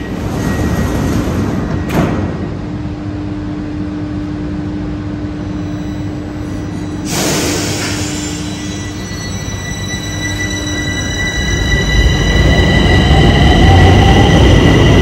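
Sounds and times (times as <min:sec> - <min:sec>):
train doors shutting: 0:00.0 - 0:02.8, 0:06.4 - 0:14.4
train hum: 0:00.0 - 0:15.0.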